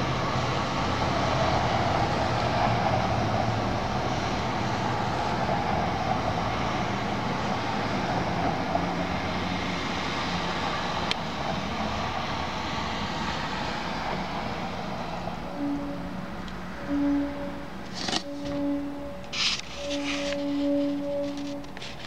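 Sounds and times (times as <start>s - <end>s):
faint low humming tones: 15.4s - 21.8s.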